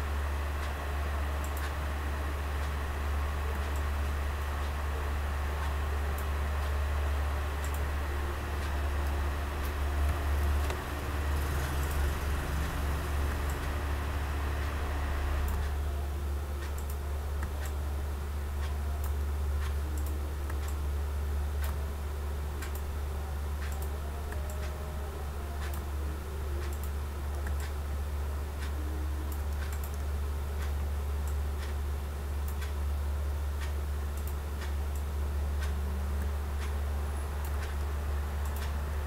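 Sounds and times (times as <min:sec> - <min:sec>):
low electrical hum: 0:00.0 - 0:39.0
computer mouse clicking: 0:07.6 - 0:07.9, 0:28.6 - 0:31.8.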